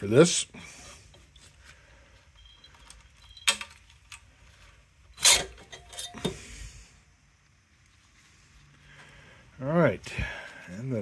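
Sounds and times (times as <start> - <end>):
metal clinks and knocks: 2.4 - 4.2, 5.2 - 6.4.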